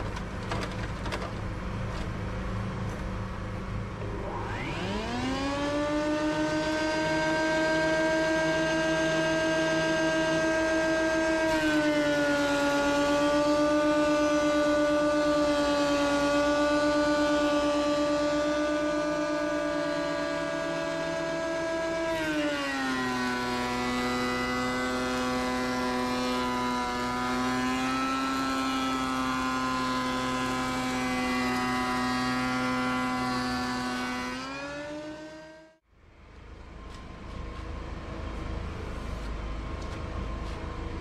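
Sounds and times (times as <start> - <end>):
rough machine hum: 0.0 - 41.0
thickness planer whining: 3.9 - 35.8.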